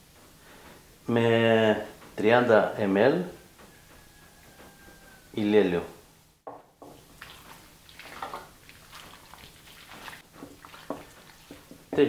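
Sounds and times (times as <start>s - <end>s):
hands squishing wet meat: 6.9s - 12.0s.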